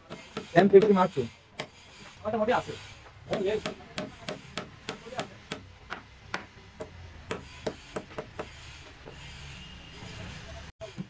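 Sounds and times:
hand hammer striking: 3.3s - 8.6s.

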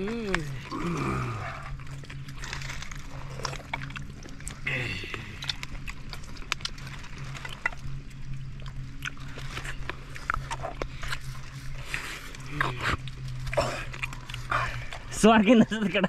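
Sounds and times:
person humming: 0.0s - 1.6s
low steady hum: 0.0s - 16.0s
wet chewing and slurping: 0.0s - 16.0s.

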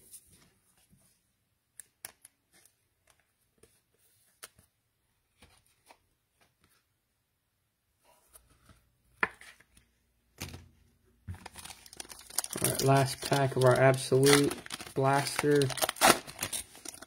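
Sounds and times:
trading cards clicking and rustling: 11.4s - 17.0s.

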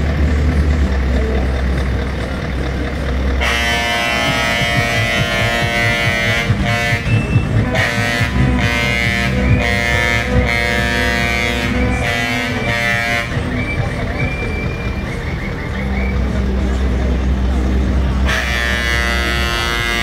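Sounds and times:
low rumble: 0.0s - 20.0s
musical truck air horn: 3.4s - 15.8s, 18.2s - 20.0s.

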